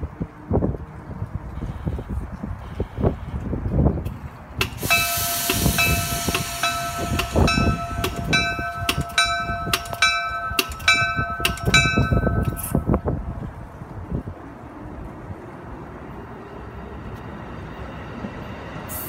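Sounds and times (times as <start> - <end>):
train rumbling on track: 0.0 - 19.0
train bell ringing: 4.7 - 13.2.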